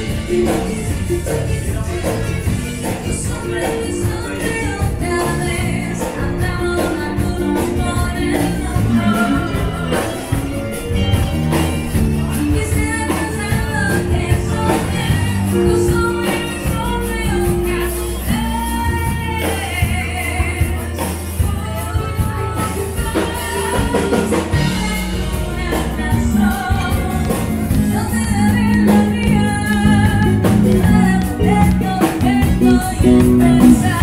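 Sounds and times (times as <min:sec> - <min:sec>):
live band playing: 0:00.0 - 0:34.0
woman singing: 0:00.0 - 0:34.0.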